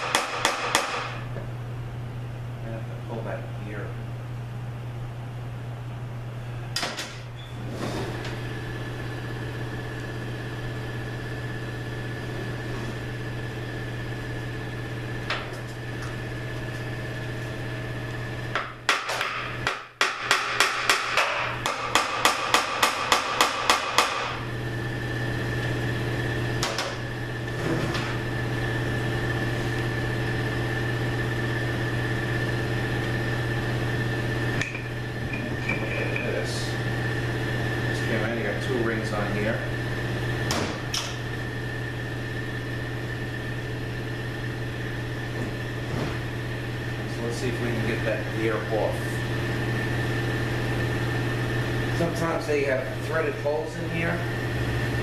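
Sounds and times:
hammer striking metal: 0.0 - 1.2, 18.6 - 24.4
low shop hum: 0.0 - 55.0.

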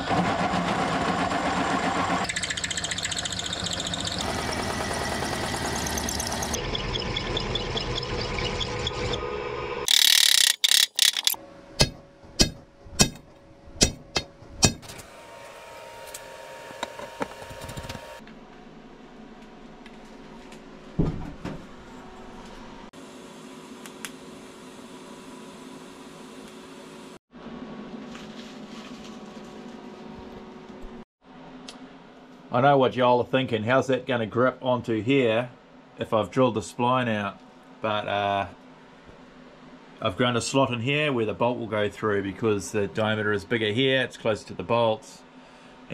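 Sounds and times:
drill press drilling steel: 9.9 - 11.4.

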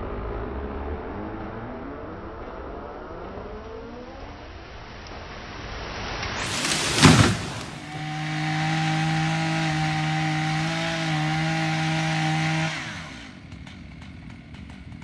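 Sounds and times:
tree crashing to the ground: 6.4 - 14.6
chainsaw running: 6.4 - 15.0.

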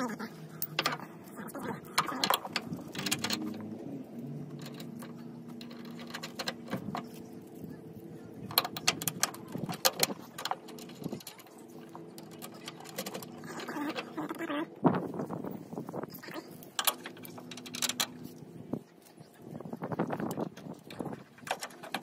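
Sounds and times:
steady low hum: 0.0 - 22.0
metal bracket and bolt clinking: 0.6 - 1.1, 1.8 - 3.8, 4.4 - 7.2, 8.4 - 14.2, 16.7 - 18.4, 20.6 - 22.0.

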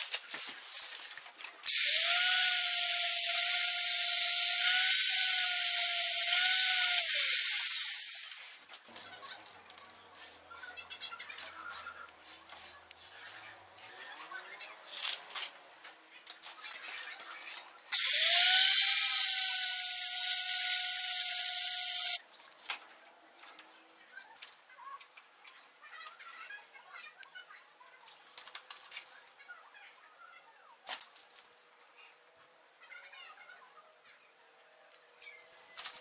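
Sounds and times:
angle grinder cutting pipe: 1.6 - 8.6, 17.9 - 22.2.

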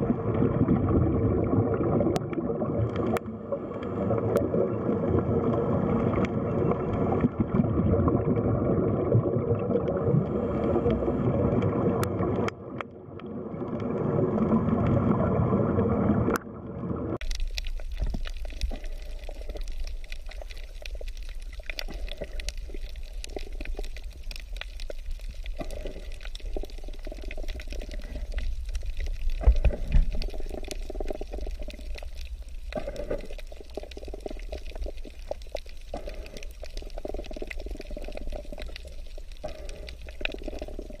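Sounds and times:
underwater water rushing and gurgling: 0.0 - 41.0
crackling clicks: 2.0 - 7.4, 17.1 - 41.0.

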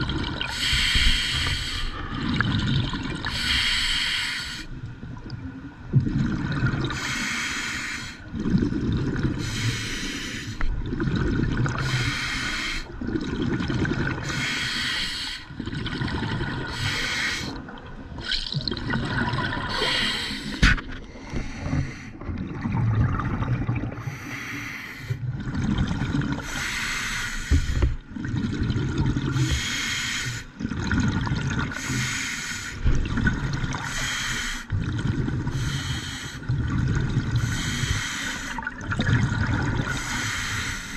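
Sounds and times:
gurgling exhaled bubbles: 0.0 - 0.8, 1.9 - 3.5, 5.0 - 7.0, 8.3 - 9.6, 10.7 - 12.2, 13.0 - 14.6, 15.5 - 24.3, 25.2 - 26.7, 27.6 - 29.7, 30.5 - 32.0, 32.8 - 35.8, 36.4 - 40.7
regulator breathing hiss: 0.5 - 2.0, 3.3 - 4.7, 7.0 - 8.2, 9.4 - 10.6, 11.8 - 12.9, 14.3 - 15.5, 16.7 - 17.6, 19.7 - 20.6, 26.4 - 27.9, 29.4 - 30.5, 31.8 - 32.8, 33.9 - 34.7, 35.5 - 36.4, 37.4 - 38.6, 39.9 - 40.9.

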